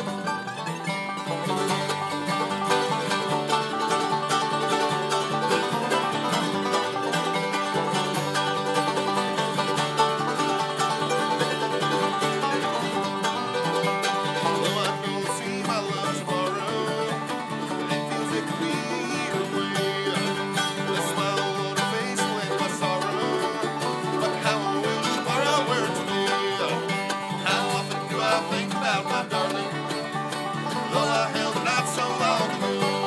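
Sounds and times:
acoustic guitar strumming: 0.0s - 33.0s
banjo rolling: 0.0s - 33.0s
mandolin: 0.0s - 33.0s
man singing: 14.4s - 30.0s, 30.6s - 33.0s.

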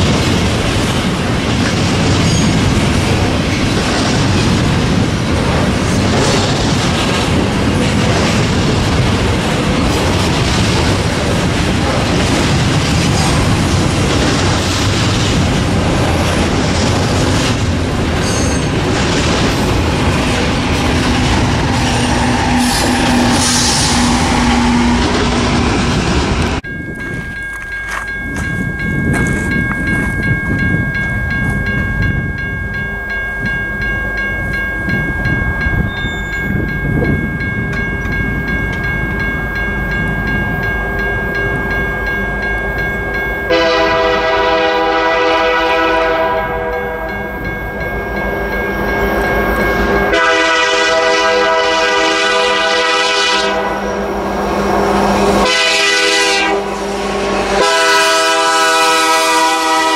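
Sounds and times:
train rumbling past: 0.0s - 59.9s
locomotive air horn blasts: 22.0s - 25.3s, 43.5s - 47.1s, 50.1s - 54.0s, 55.4s - 59.9s.

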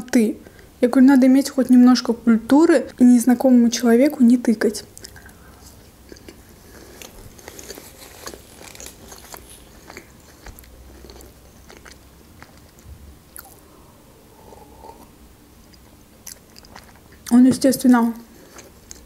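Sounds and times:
chewing with wet smacking: 6.0s - 13.6s, 15.6s - 17.4s, 18.4s - 19.0s
sips and swallows: 13.4s - 17.0s.

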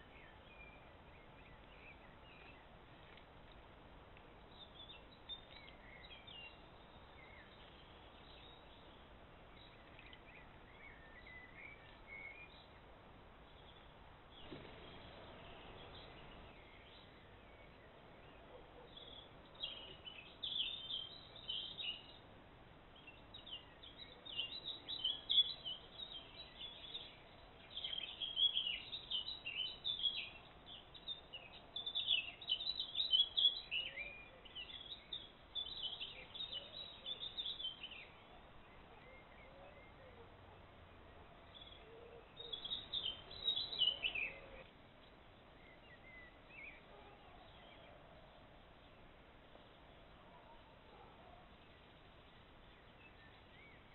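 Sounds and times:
faint steady hiss: 0.0s - 53.9s
songbird singing high notes: 42.4s - 44.6s.

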